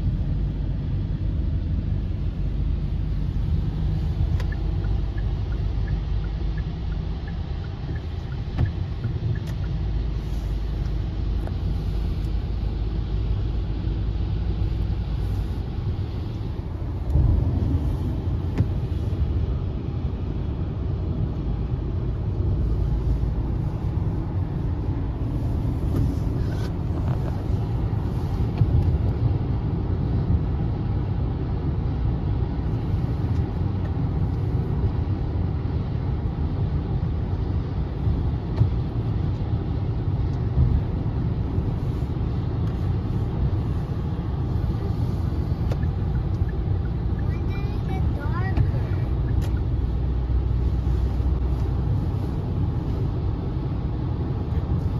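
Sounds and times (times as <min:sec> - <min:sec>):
car road and engine rumble: 0:00.0 - 0:54.9.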